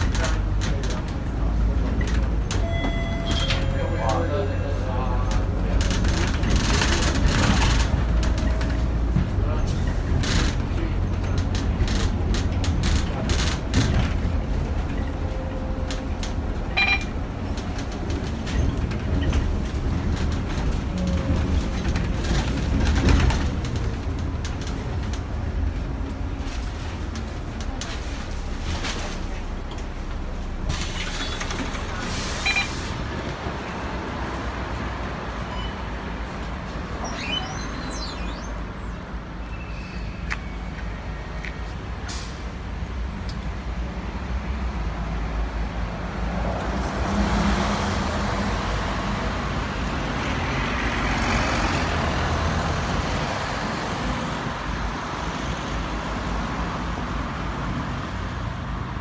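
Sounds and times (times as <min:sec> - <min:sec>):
bus diesel engine running: 0:00.0 - 0:47.3
air brakes hissing: 0:42.0 - 0:42.5.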